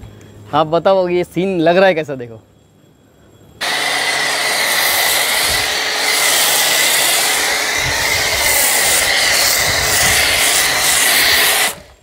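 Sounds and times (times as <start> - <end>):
pressure washer spraying foam: 3.6 - 12.0.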